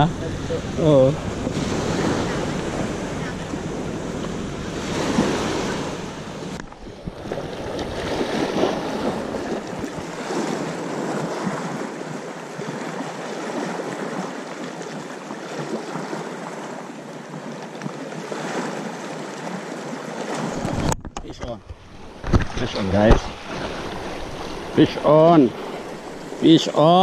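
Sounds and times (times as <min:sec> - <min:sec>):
wind on microphone: 0:00.0 - 0:11.9, 0:20.4 - 0:26.4
sea waves washing onto shore: 0:00.0 - 0:21.0, 0:21.7 - 0:27.0.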